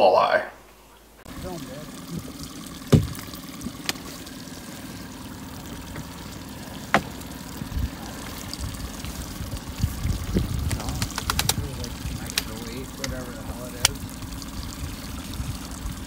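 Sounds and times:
water sloshing against boat hull: 0.8 - 16.0
outboard motor humming: 0.9 - 16.0
sharp knocks: 2.2 - 4.0, 6.9 - 7.2.

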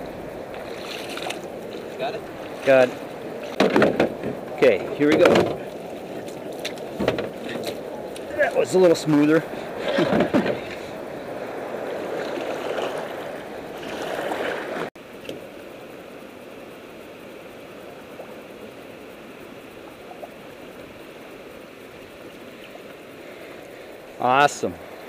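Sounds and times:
water splashing around canoe: 0.0 - 14.9
river water washing: 0.0 - 25.0.

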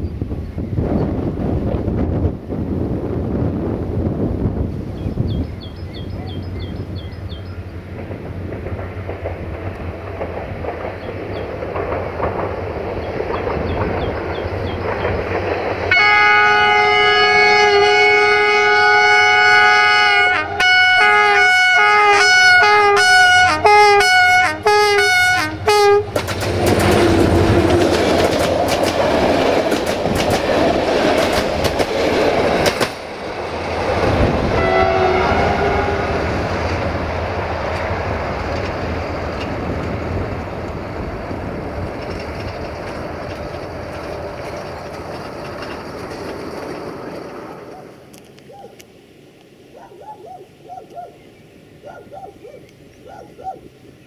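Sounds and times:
train rumble: 0.0 - 54.0
train wheels clicking over rail joints: 5.8 - 16.1, 26.0 - 34.6, 36.3 - 48.4
locomotive horn: 15.9 - 27.7, 34.4 - 36.6.

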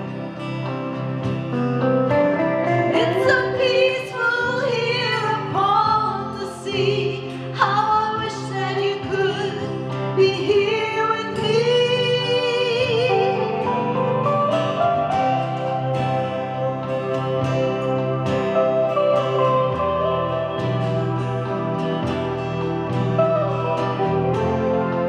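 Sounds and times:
acoustic guitar: 0.0 - 25.0
woman singing: 2.9 - 14.2.

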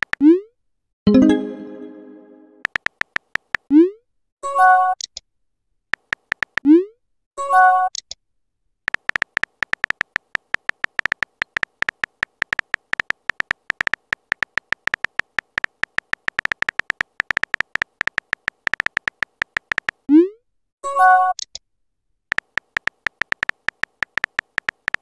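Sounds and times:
message alert chime: 1.1 - 2.6
keyboard typing clicks: 1.1 - 3.7, 6.0 - 6.6, 8.9 - 20.1, 22.3 - 25.0.

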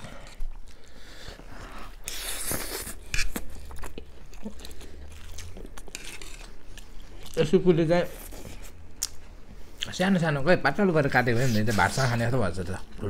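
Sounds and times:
chewing and biting food: 2.0 - 7.5.

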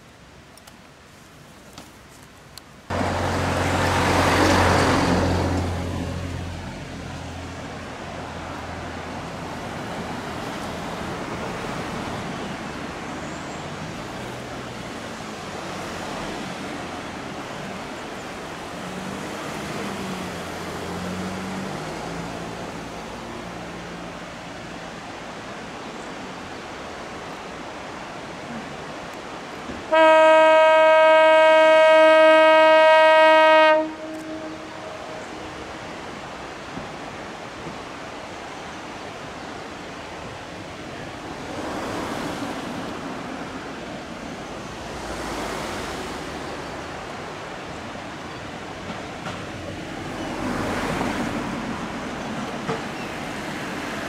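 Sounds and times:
loud rushing noise: 2.9 - 10.9
railcar engine drone: 2.9 - 54.0.

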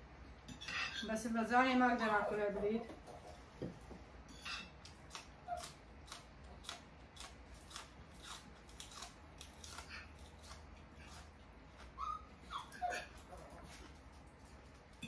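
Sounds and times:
people eating crunchy food: 4.9 - 12.0.

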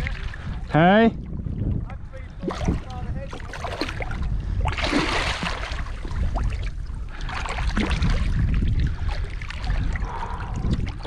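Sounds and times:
wind rumble on microphone: 0.0 - 11.0
shark tail splashing water: 2.4 - 10.0.

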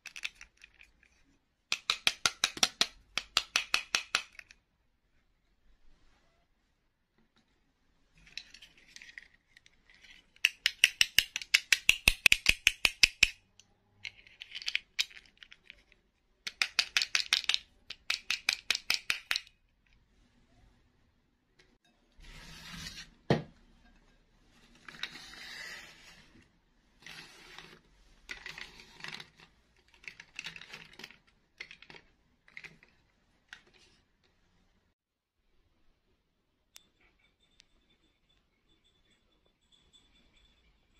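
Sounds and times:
plastic figures clicking and tapping: 0.0 - 4.7, 8.4 - 19.6, 27.6 - 34.0.

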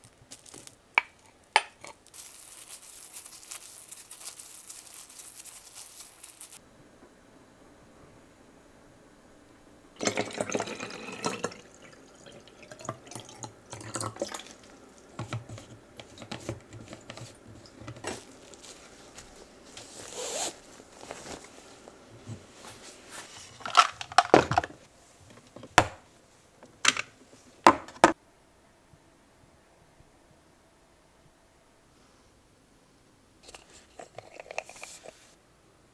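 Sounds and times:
cling film crinkling: 0.0 - 0.8, 1.9 - 6.6, 16.1 - 22.0
cloth bag rustling: 2.0 - 6.6, 16.1 - 24.0.

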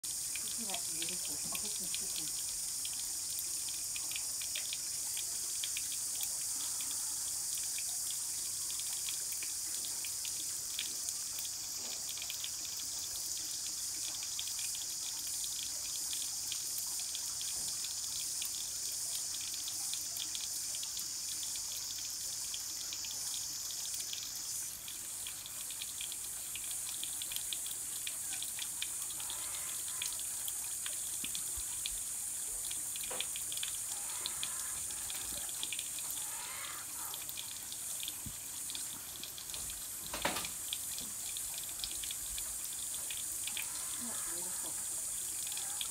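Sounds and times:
insects humming: 0.1 - 39.4, 41.8 - 45.9.

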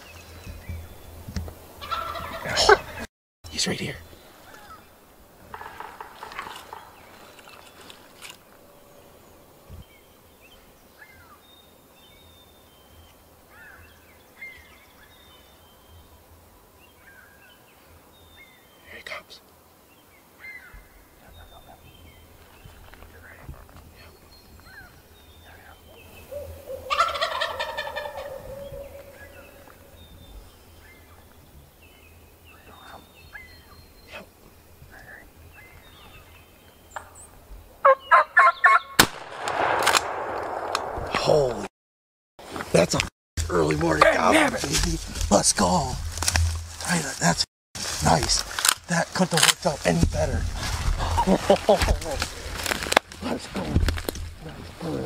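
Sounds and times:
small birds chirping: 0.0 - 39.0
turkey gobbling: 1.8 - 3.0, 5.5 - 6.9, 26.3 - 29.6, 37.8 - 39.0
sharp click: 39.0 - 41.2.

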